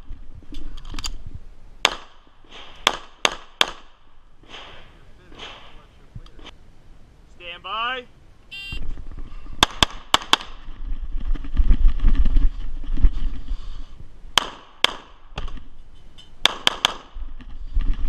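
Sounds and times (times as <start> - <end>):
pistol shots: 1.8 - 5.8, 14.4 - 15.2, 16.4 - 17.2.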